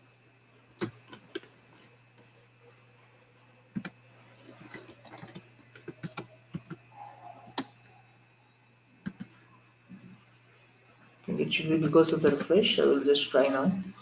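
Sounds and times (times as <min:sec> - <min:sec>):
faint low hum: 0:00.0 - 0:14.0
keyboard typing: 0:00.8 - 0:01.5, 0:03.7 - 0:07.9, 0:09.0 - 0:09.4.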